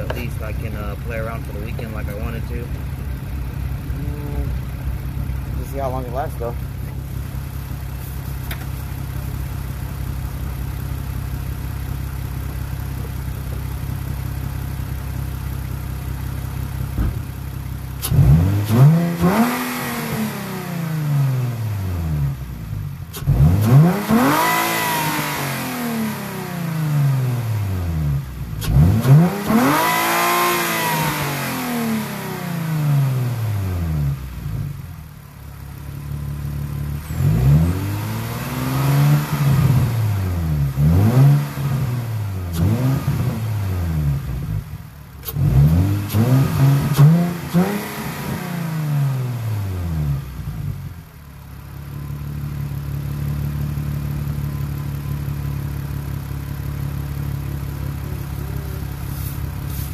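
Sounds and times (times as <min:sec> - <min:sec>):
car engine idling and revving: 0:00.0 - 0:59.9.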